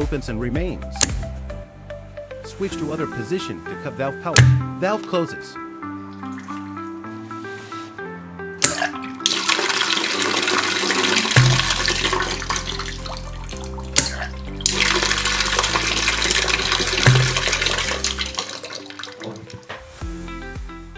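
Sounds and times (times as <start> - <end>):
background music: 0.0 - 20.9
water rushing from pipe: 8.6 - 19.6.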